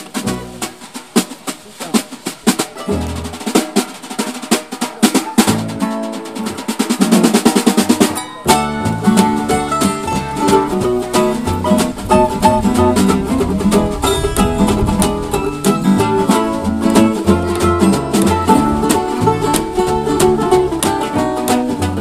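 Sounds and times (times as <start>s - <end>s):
acoustic guitar picked and strummed: 0.0s - 22.0s
snare drum beat: 0.0s - 22.0s
plucked-string lead: 2.2s - 4.3s, 7.8s - 22.0s.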